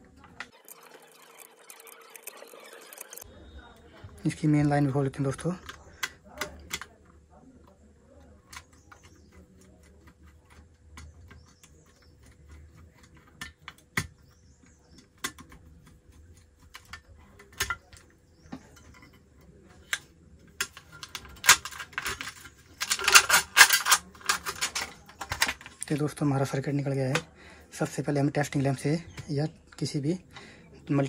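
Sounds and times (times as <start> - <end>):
clatter of metal and plastic: 5.3 - 27.3.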